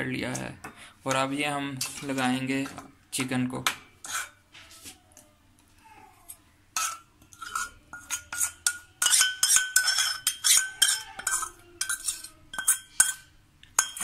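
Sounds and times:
metal spoon clinking steel bowls: 0.2 - 2.9, 4.0 - 4.4, 6.3 - 14.0.

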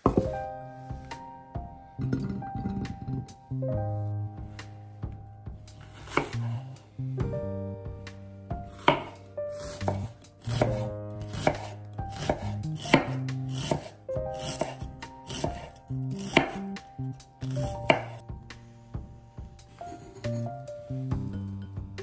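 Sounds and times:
soft background music: 0.0 - 22.0
knife chopping on cutting board: 5.8 - 6.7, 8.7 - 16.8, 17.4 - 18.2.

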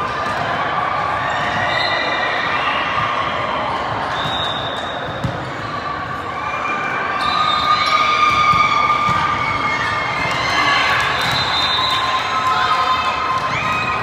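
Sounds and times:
volleyballs struck and bouncing: 3.0 - 5.6, 8.2 - 11.5.

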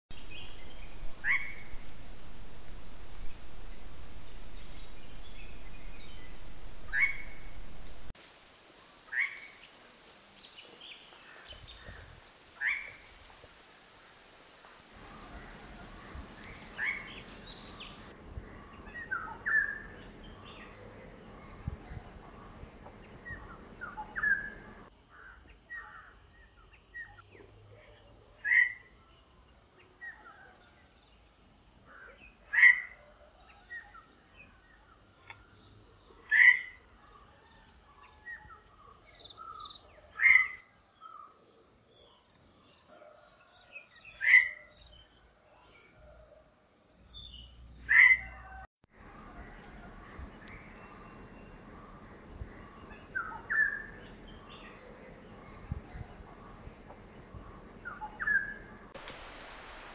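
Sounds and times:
soft bird chirps: 0.1 - 8.1, 49.0 - 59.9
bird calling loudly: 1.1 - 1.9.

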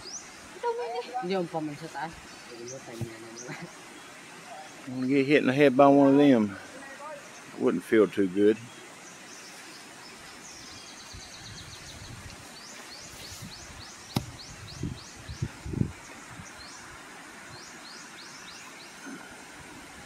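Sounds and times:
coconuts thudding on ground: 14.1 - 14.5.

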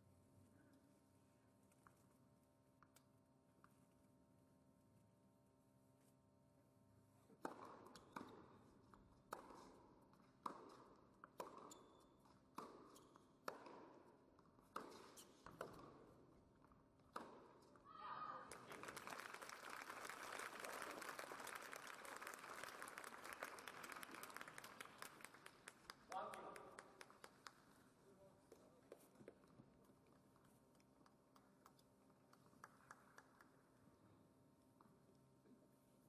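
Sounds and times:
tennis ball strikes and bounces: 7.4 - 8.5, 9.3 - 9.8, 10.4 - 11.7, 12.5 - 14.0, 14.6 - 16.0, 17.1 - 17.6
crowd applause: 18.4 - 26.0.

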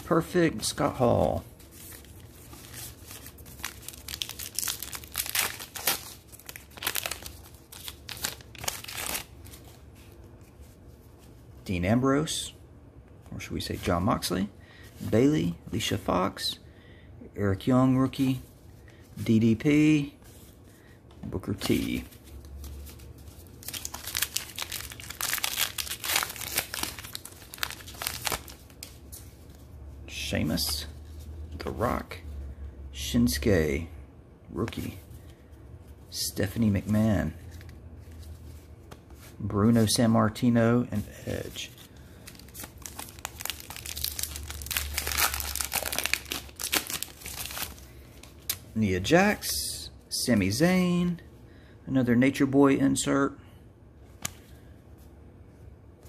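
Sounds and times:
card pack wrapper crinkling and tearing: 2.0 - 9.6, 22.7 - 29.0, 41.9 - 48.6.

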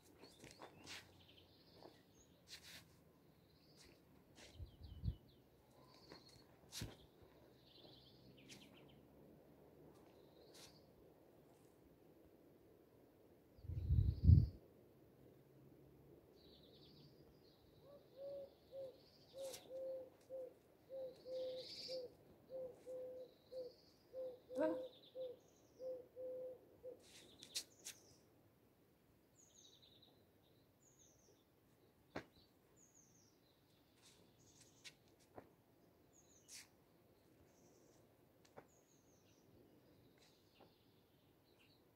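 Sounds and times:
low bird hooting: 17.8 - 27.0
bird chirps and twitters: 17.9 - 26.3.

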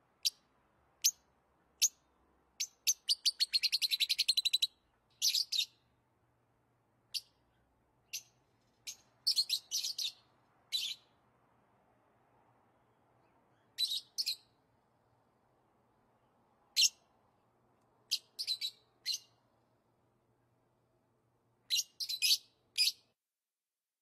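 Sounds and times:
lovebird chirping: 0.2 - 5.9, 7.1 - 11.2, 13.2 - 14.6, 16.7 - 17.1, 18.0 - 19.5, 21.6 - 23.1.

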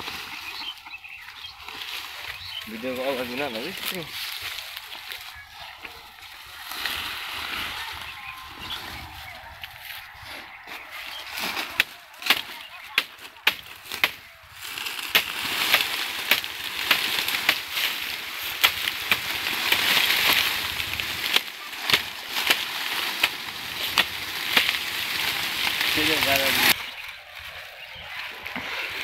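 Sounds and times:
dry leaves rustling and crackling: 0.0 - 29.0
stalks snapping: 11.2 - 26.8.

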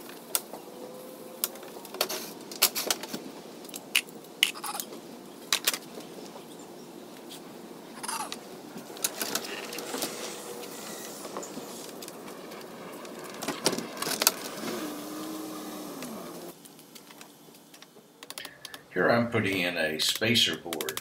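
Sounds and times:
falling squeak: 9.4 - 11.9.

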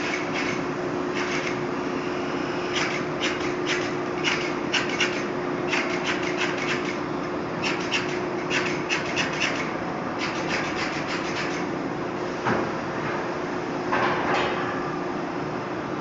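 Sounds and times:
machine hum: 0.0 - 14.0.

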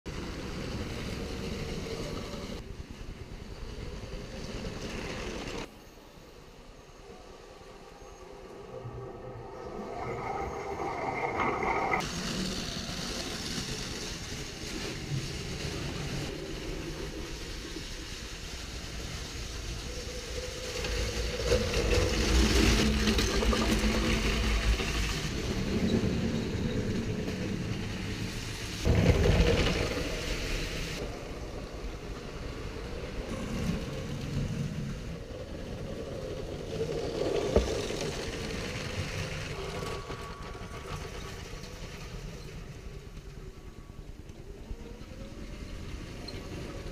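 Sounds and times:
wheels rattling on plastic track: 12.0 - 30.6, 33.3 - 46.9.

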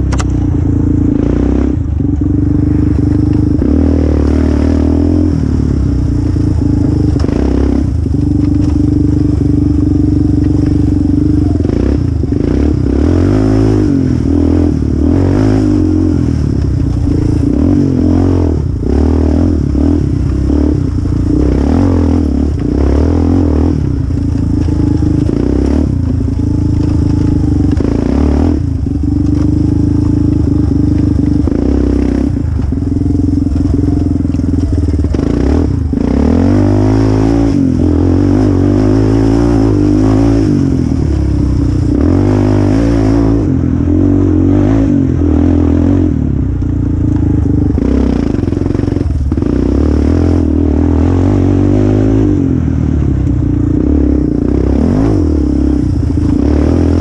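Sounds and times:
quad clattering over dirt: 0.0 - 13.3, 14.8 - 43.3
quad engine revving: 0.0 - 57.0.

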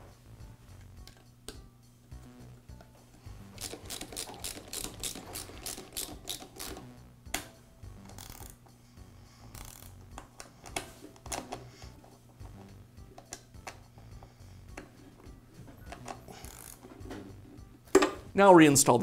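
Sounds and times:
ratchet clicking: 3.6 - 6.9, 8.1 - 8.6, 9.5 - 10.0, 16.0 - 16.8.

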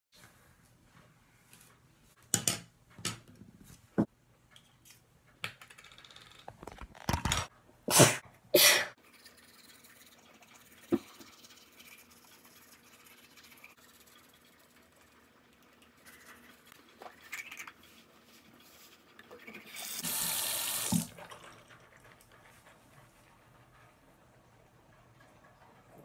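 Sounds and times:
toothbrush scrubbing teeth: 9.0 - 20.0.

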